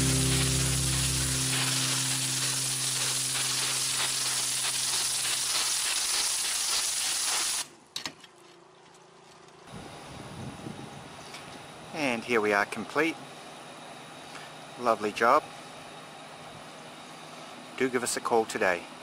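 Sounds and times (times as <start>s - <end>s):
water spray hitting roof tiles: 0.0s - 7.7s.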